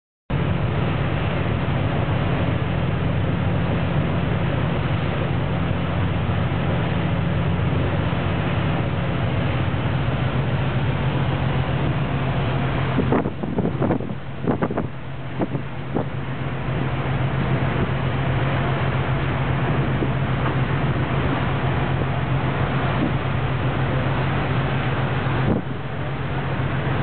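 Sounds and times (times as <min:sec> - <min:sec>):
ship engines droning: 0:00.3 - 0:27.0
wind rushing over microphone: 0:10.9 - 0:26.0.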